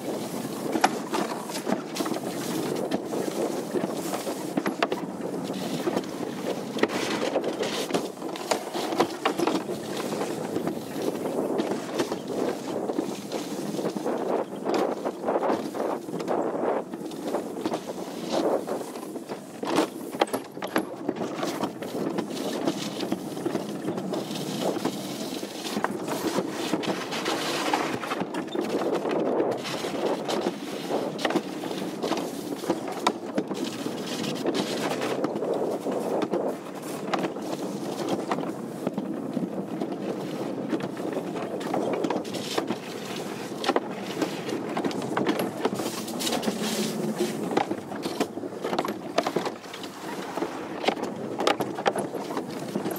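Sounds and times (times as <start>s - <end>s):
sled scraping in track: 0.0s - 52.9s.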